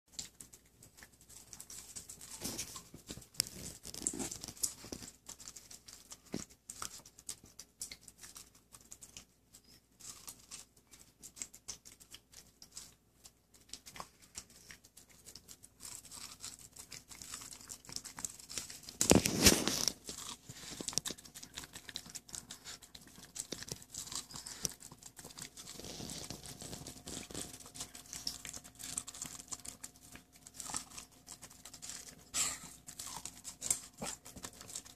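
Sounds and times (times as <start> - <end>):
dog crunching corn cob: 0.1 - 34.9.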